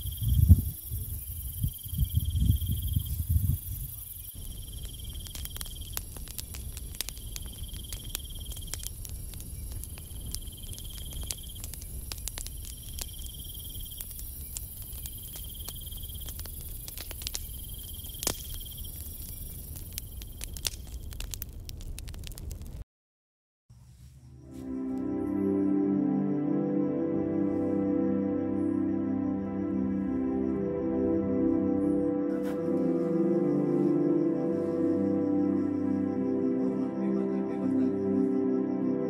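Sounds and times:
insect trilling: 0.0s - 21.0s
campfire crackling and popping: 0.0s - 22.8s.

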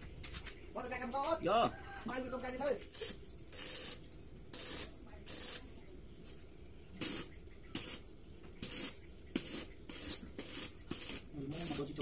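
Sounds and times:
arc welding hiss: 2.9s - 5.6s, 7.0s - 8.0s, 8.6s - 12.0s.

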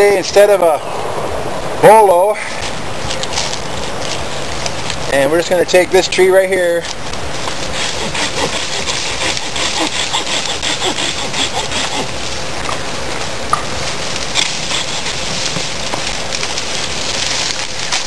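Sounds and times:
hand saw cutting wood: 7.6s - 12.2s, 14.4s - 15.4s.

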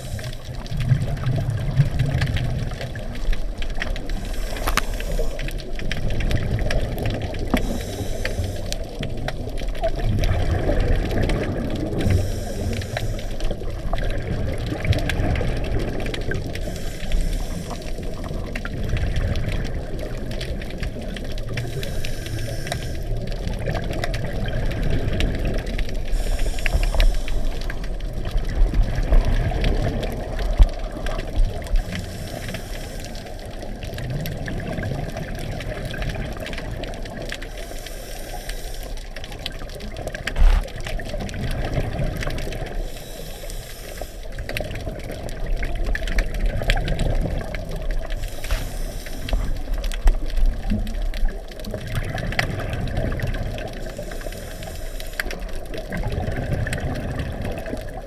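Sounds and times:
diver's regulator breathing hiss: 0.0s - 0.5s, 4.0s - 5.9s, 7.4s - 9.0s, 11.9s - 13.6s, 16.4s - 18.4s, 21.6s - 23.4s, 25.5s - 28.0s, 31.6s - 33.7s, 37.4s - 39.3s, 42.7s - 44.6s, 48.0s - 50.8s, 53.6s - 55.6s
underwater bubbling rumble: 0.0s - 58.0s.

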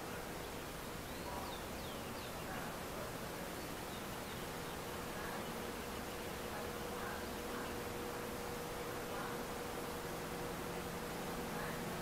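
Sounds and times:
faint hum: 0.0s - 12.0s
outdoor hiss: 0.0s - 12.0s.

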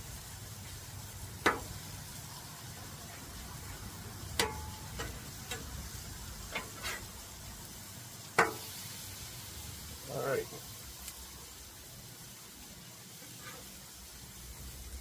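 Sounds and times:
frying sizzle: 0.0s - 15.0s
metal spatula scraping griddle: 6.4s - 7.2s, 13.1s - 14.0s.

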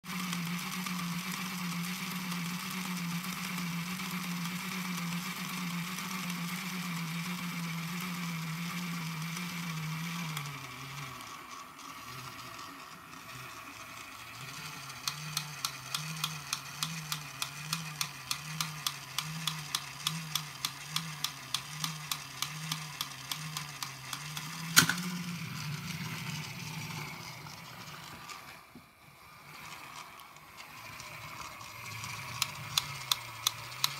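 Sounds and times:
toy motor and gears running: 0.0s - 33.9s
regular clicking: 15.0s - 25.1s, 30.0s - 33.9s
sharp clack: 24.1s - 25.1s.

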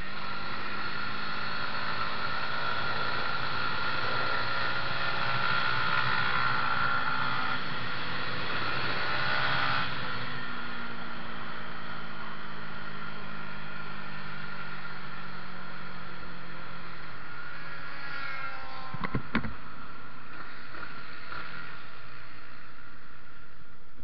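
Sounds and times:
sharp knocks: 18.9s - 19.6s.

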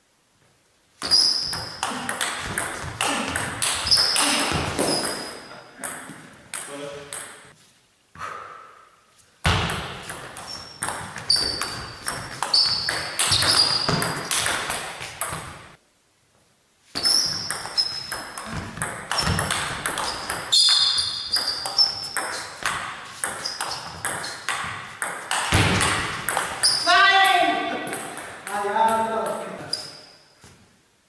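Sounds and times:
short high squeaks: 1.0s - 1.8s, 3.6s - 5.6s, 10.4s - 14.4s, 17.0s - 18.3s, 20.0s - 22.6s, 23.2s - 24.5s, 26.6s - 27.1s, 29.7s - 30.4s.

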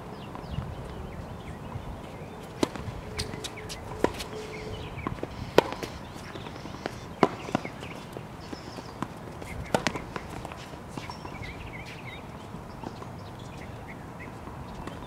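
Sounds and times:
tennis balls struck by racquets: 2.4s - 11.4s
tennis balls bouncing on hard court: 2.4s - 12.1s.

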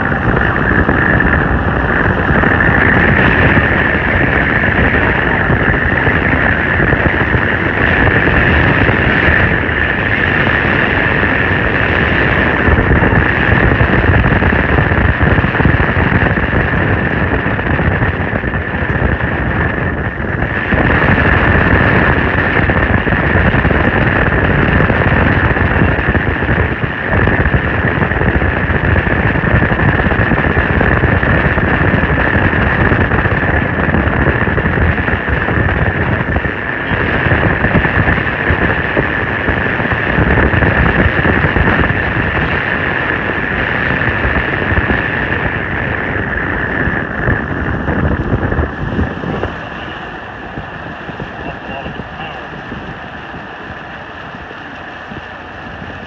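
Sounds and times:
steady high-pitched tone: 0.0s - 16.8s, 44.2s - 56.0s
road and engine noise: 0.0s - 56.0s
wind buffeting microphone: 0.0s - 56.0s.

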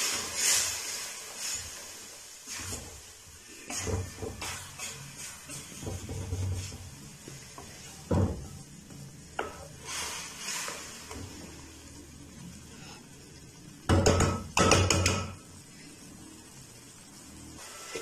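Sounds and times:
wooden spatula scraping a pan: 0.0s - 8.1s, 9.4s - 11.6s.

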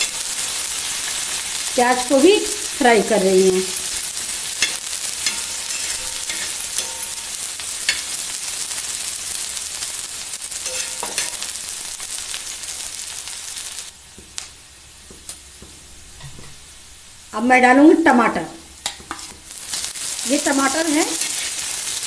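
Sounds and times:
vegetables sizzling in oil: 0.0s - 22.0s
spatula scraping and tapping pan: 4.6s - 8.2s, 10.6s - 11.5s, 18.8s - 19.9s.

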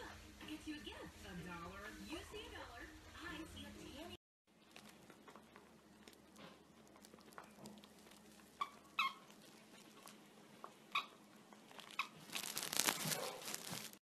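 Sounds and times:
puppy chewing plush toy: 4.6s - 13.7s
toy squeaks: 8.6s - 9.3s.

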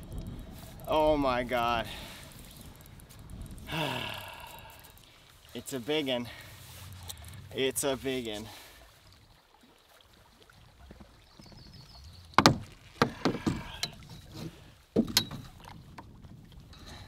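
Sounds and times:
branch knocking against canoe: 12.3s - 16.2s.

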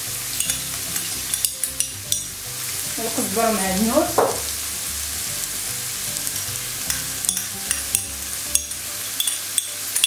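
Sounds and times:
food sizzling in a frying pan: 0.0s - 10.0s
spoon clicking against pan: 0.4s - 2.3s, 6.3s - 10.0s.

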